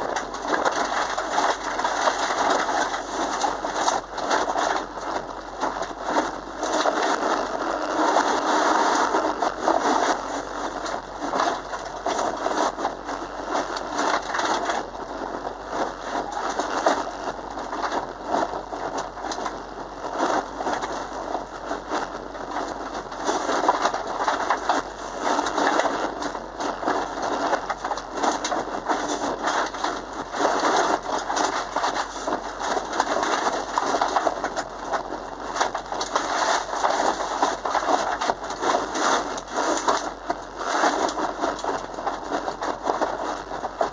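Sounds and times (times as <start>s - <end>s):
stones crackling against car underside: 0.0s - 43.9s.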